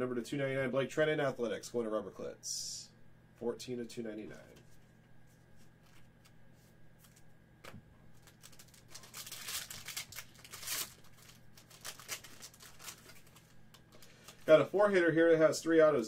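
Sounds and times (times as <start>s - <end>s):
card packaging rustling and crinkling: 4.4s - 14.9s.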